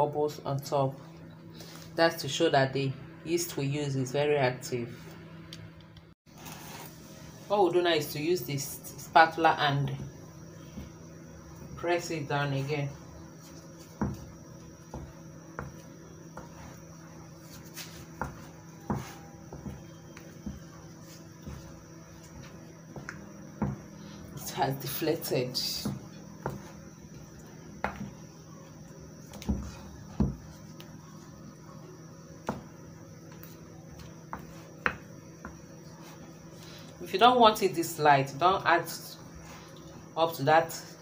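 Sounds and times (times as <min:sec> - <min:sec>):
dough slapping: 0:13.4 - 0:28.4.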